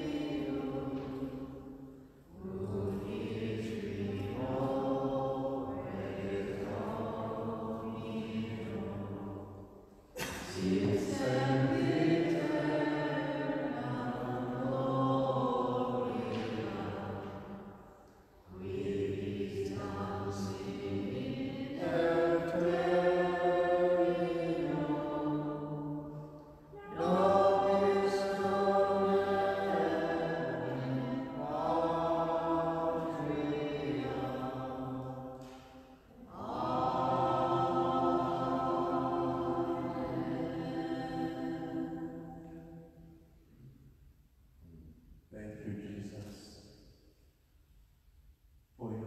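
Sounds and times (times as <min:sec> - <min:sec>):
slow sung chant: 0:00.0 - 0:43.7.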